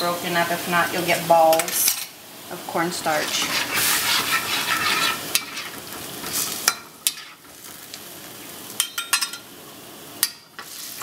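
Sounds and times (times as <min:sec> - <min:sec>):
sauce sizzling in a wok: 0:00.0 - 0:11.0
metal utensil striking a wok: 0:08.8 - 0:09.4.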